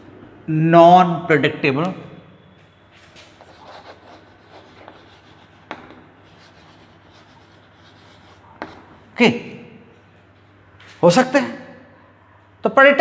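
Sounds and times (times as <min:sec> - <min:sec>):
chalk scratching on chalkboard: 0:03.3 - 0:09.0
chalk tapping on board: 0:03.4 - 0:09.0.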